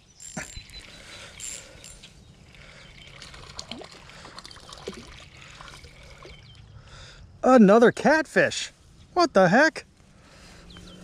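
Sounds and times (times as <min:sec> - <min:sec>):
fishing reel clicks: 0:00.2 - 0:02.1
water splashing and trickling: 0:02.4 - 0:06.9.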